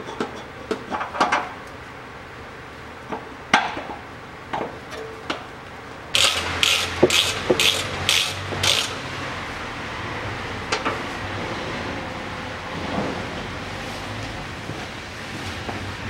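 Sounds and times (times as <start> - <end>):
ratchet wrench clicking: 6.1 - 9.0.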